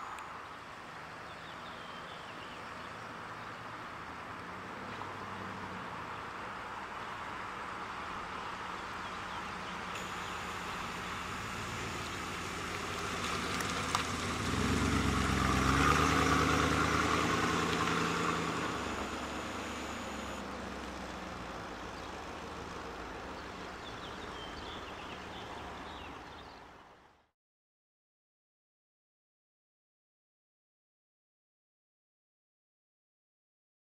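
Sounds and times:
car engine running: 8.1 - 26.6.

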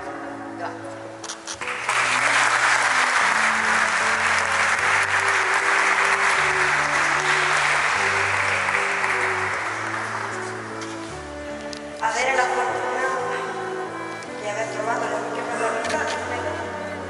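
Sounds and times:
soft background music: 0.0 - 17.0
people applauding: 1.5 - 10.9.

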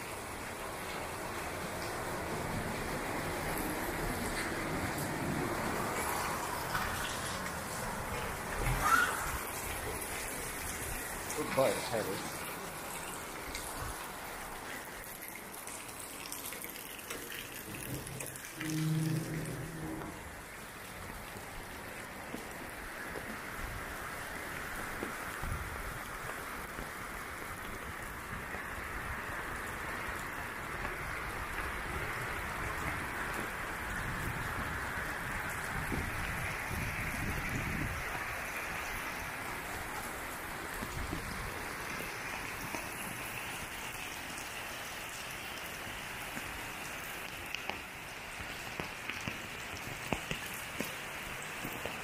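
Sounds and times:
rain on concrete: 0.0 - 52.0
low rumbling: 17.7 - 20.6.

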